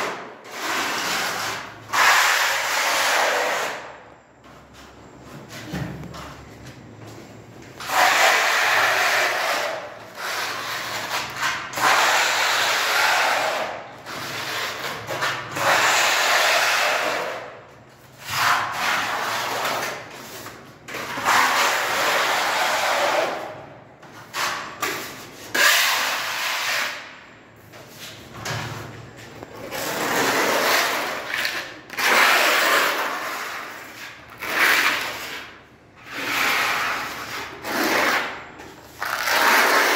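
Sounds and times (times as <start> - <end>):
putty blade scraping wall: 24.2 - 27.2, 29.6 - 39.9.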